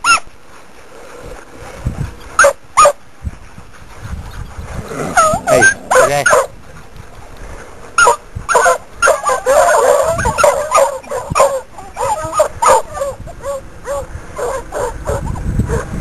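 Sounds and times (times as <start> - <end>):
hounds baying: 4.4 - 15.9.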